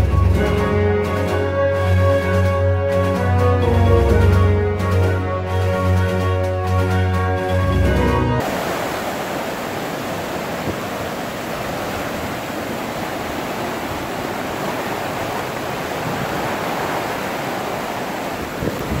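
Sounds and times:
floodwater rushing: 8.4 - 19.0.

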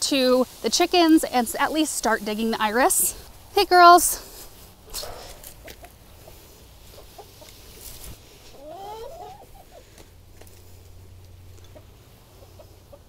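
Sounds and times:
hens clucking softly: 5.5 - 13.0
wavering hen call: 8.4 - 9.8.

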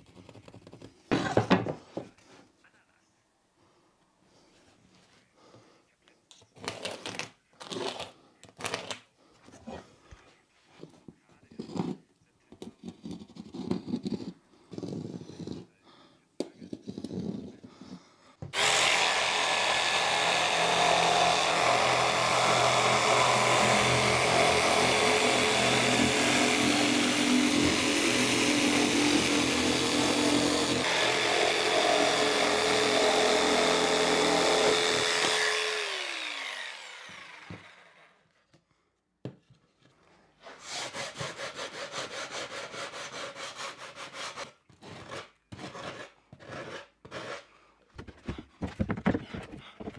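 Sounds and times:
jigsaw cutting board: 6.6 - 9.0, 12.6 - 15.6, 16.6 - 38.6, 40.4 - 49.9
sanding sponge rubbing wood: 40.4 - 47.4.

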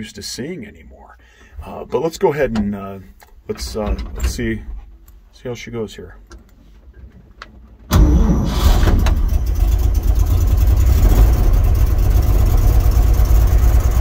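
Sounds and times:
engine running steadily: 7.9 - 14.0
pickup engine cold-starting: 7.9 - 14.0.

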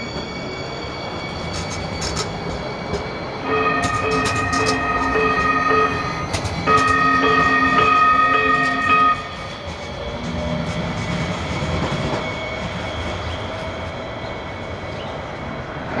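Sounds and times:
train running on rails: 0.0 - 16.0
light rail horn blast: 3.4 - 9.5.

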